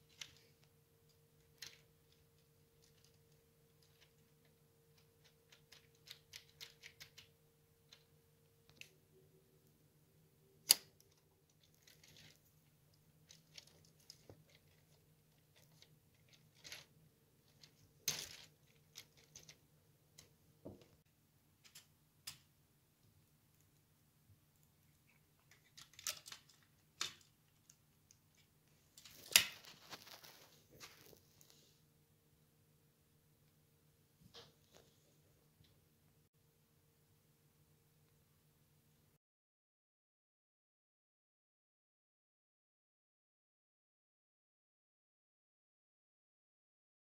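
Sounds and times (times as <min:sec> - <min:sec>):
faint steady hum: 0:00.0 - 0:39.2
plastic parts clicking together: 0:01.1 - 0:07.3, 0:10.6 - 0:12.4, 0:13.2 - 0:19.6, 0:25.1 - 0:30.3.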